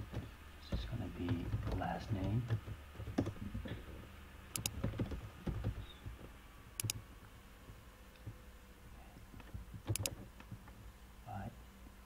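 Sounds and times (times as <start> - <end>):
mouse clicks: 4.6 - 4.8, 6.8 - 7.0, 9.9 - 10.1
keyboard key taps: 4.6 - 5.8, 6.8 - 7.0, 9.8 - 10.2.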